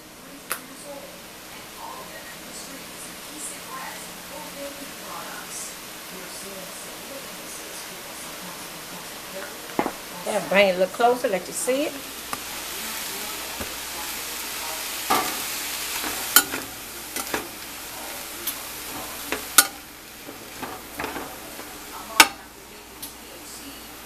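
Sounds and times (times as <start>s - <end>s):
meat sizzling in skillet: 0.7s - 24.0s
metal utensil scraping pan: 15.1s - 22.4s.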